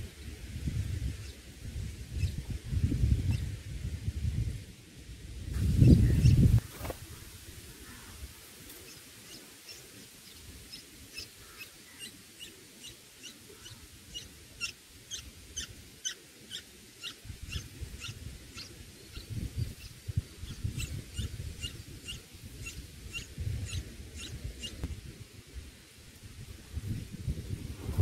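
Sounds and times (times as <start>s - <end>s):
nestlings begging with high chirps: 5.6s - 6.5s, 8.9s - 24.8s.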